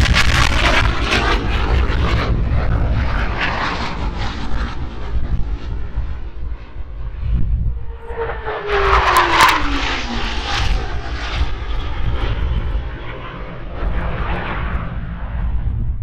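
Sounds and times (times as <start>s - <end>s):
jet engines roaring past: 0.0s - 16.0s
jet whine falling in pitch: 0.0s - 16.0s.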